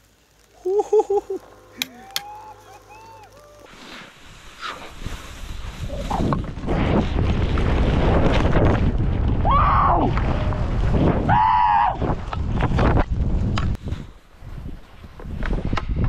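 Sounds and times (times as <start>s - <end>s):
person yelling: 0.6s - 3.7s
wind rushing over microphone: 4.2s - 16.0s.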